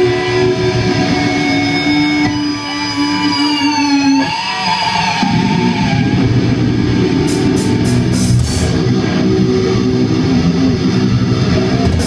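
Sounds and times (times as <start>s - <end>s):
electric guitar feedback: 0.0s - 12.0s
band playing metal music: 5.3s - 12.0s.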